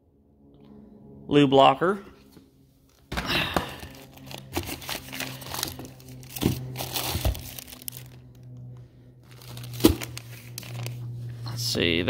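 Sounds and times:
plastic bags crinkling: 3.8 - 8.4, 9.2 - 11.0.

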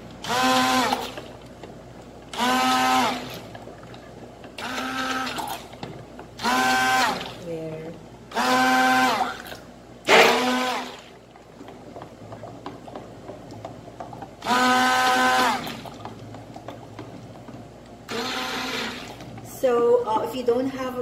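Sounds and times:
stick blender motor whine: 0.2 - 1.2, 2.4 - 3.4, 4.6 - 5.5, 6.4 - 7.2, 8.3 - 9.4, 10.1 - 11.1, 14.4 - 15.9, 18.1 - 19.2.

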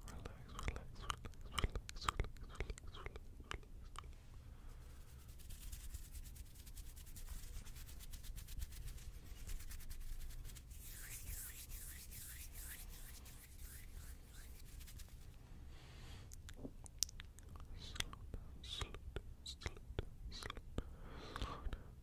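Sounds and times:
hands rubbing near microphone: 4.8 - 15.4.

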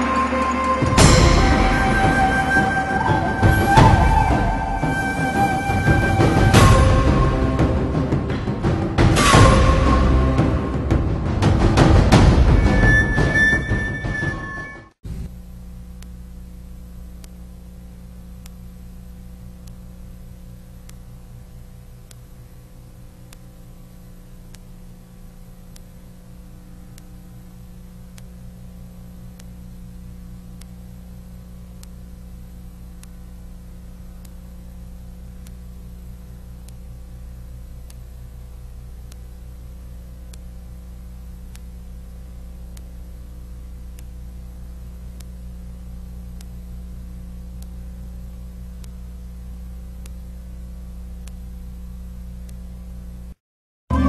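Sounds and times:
electrical hum and hiss: 15.0 - 54.0
faint clicks: 15.9 - 29.7, 30.4 - 47.9, 48.7 - 49.2, 50.0 - 51.8.

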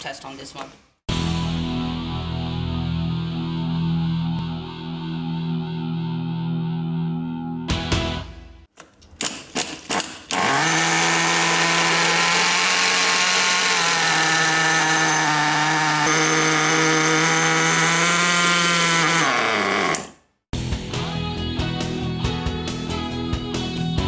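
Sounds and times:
small nitro engine buzzing: 10.4 - 20.1.

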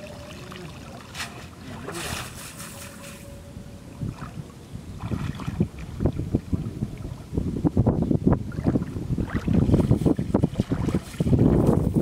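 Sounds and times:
wind buffeting microphone: 0.0 - 12.0
water splashing off net: 1.0 - 3.0.

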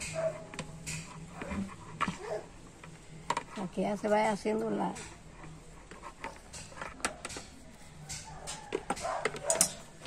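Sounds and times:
spoon scraping paste in plastic bowl: 4.9 - 10.0.

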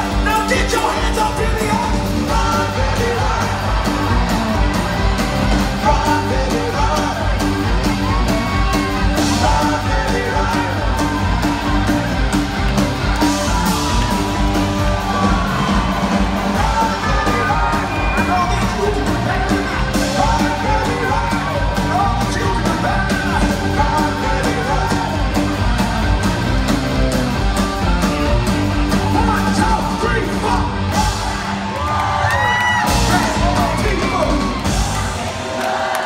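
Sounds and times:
person singing and yelling: 0.0 - 4.3, 5.6 - 11.8, 14.9 - 25.8, 29.0 - 30.8
bass guitar: 0.0 - 35.6
drums: 0.0 - 36.0
electric guitars: 0.0 - 36.0.

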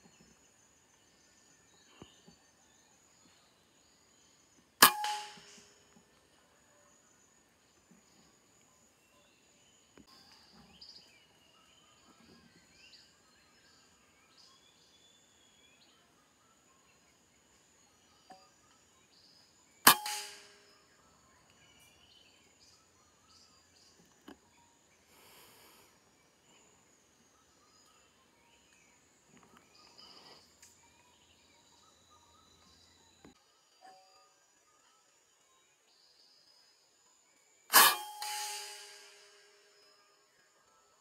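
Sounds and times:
faint bird chirps: 0.0 - 41.0
air rifle shot: 4.8 - 5.7, 19.9 - 20.6, 37.7 - 39.4.

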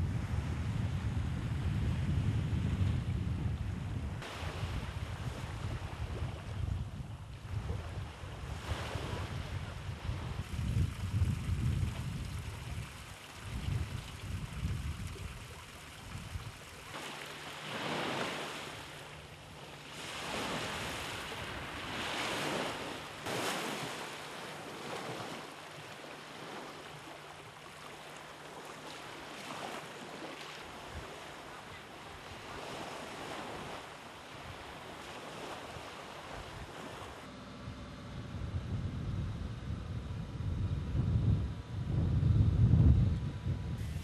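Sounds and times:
wind rumbling on microphone: 0.0 - 44.0
small waves washing onto shore: 4.1 - 37.3
faint low hum: 37.3 - 44.0.

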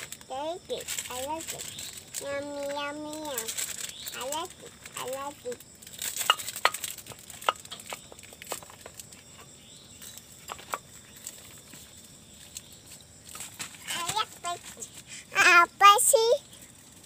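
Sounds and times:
clicks and taps of bowls and packets: 0.0 - 12.7.

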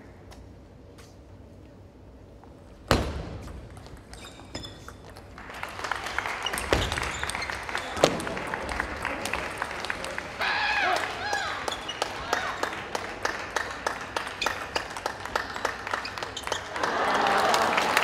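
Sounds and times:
audience clapping: 5.2 - 18.0.

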